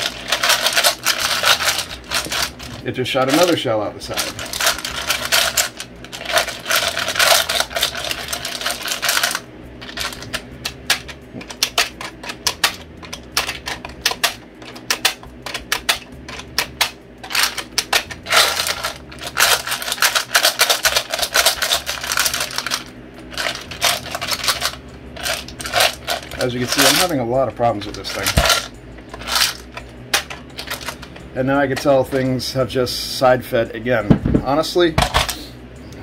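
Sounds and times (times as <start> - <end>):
cartridges rattling: 4.1 - 27.2, 27.8 - 31.2.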